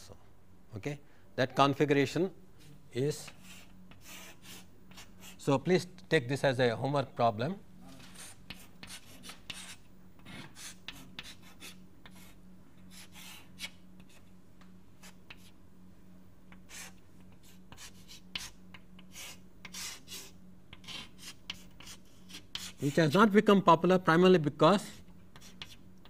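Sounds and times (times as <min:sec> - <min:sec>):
faint electrical hum: 0:00.0 - 0:26.0
pen scratching on paper: 0:08.1 - 0:14.2, 0:16.7 - 0:18.5, 0:19.1 - 0:23.1, 0:25.4 - 0:25.8.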